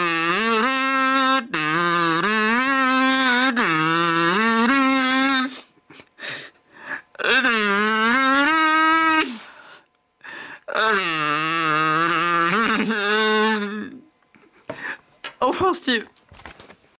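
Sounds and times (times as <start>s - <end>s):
kazoo playing slow tune: 0.0s - 14.6s.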